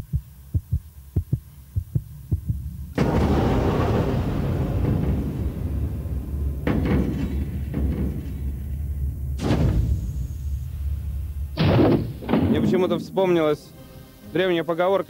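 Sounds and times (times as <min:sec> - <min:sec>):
trapdoor slams and thuds: 0:02.5 - 0:13.5.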